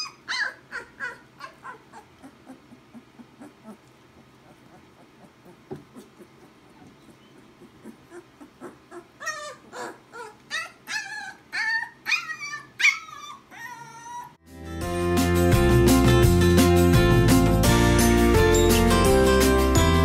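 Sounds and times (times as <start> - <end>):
puppy yipping and whimpering: 0.0 - 14.4
acoustic guitar music: 14.4 - 20.0.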